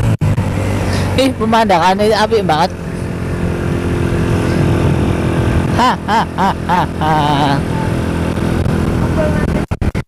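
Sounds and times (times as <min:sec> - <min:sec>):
motorcycle engine running: 0:00.0 - 0:10.0
person's voice: 0:01.0 - 0:02.8, 0:05.7 - 0:08.0.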